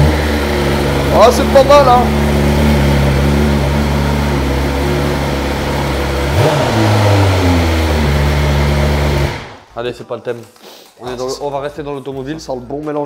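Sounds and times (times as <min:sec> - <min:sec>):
motorcycle engine idling: 0:00.0 - 0:09.4.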